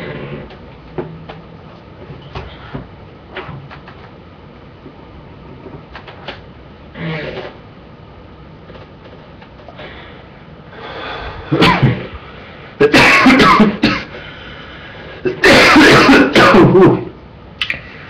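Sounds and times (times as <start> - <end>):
man coughing hard: 11.5 - 12.1, 12.8 - 14.2, 15.2 - 17.2.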